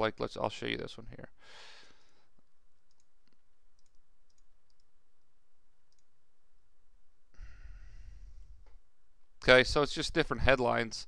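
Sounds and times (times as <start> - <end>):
low room hiss: 0.0 - 11.0
faint computer mouse clicks: 2.9 - 4.9, 5.9 - 6.1.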